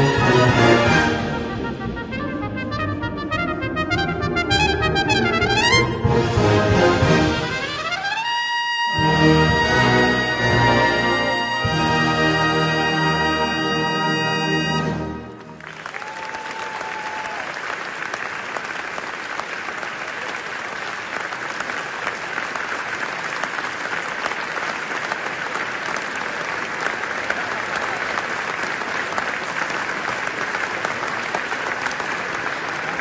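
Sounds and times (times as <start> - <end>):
brass band chord: 0.0 - 15.6
audience applauding: 15.1 - 33.0.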